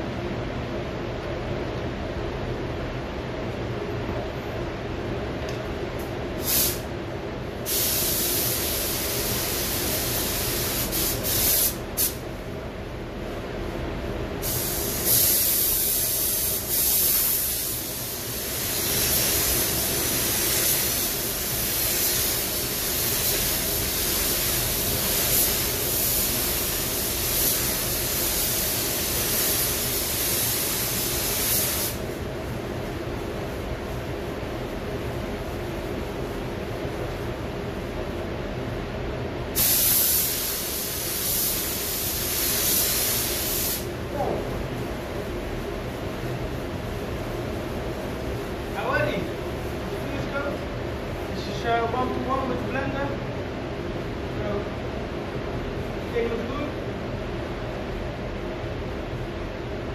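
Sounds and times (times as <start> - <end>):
paint spray gun hissing: 6.4 - 6.8, 7.6 - 12.2, 14.4 - 32.1, 39.6 - 43.9.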